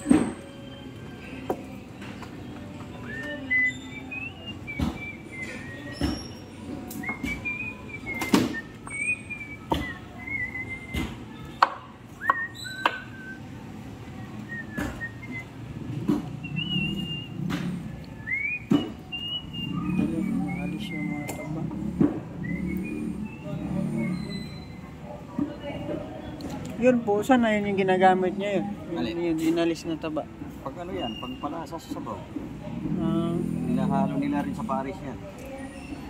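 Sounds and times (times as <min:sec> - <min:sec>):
whistled sliding notes: 0:16.4 - 0:17.4, 0:18.2 - 0:21.6.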